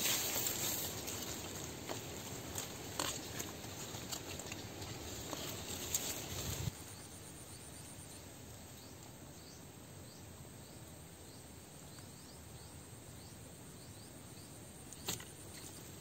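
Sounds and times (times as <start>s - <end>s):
rustling noise: 0.0s - 6.8s.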